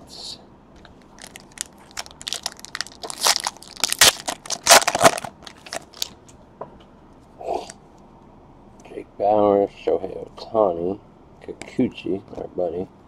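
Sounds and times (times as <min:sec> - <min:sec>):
plastic wrapper crinkling: 0:01.0 - 0:06.2.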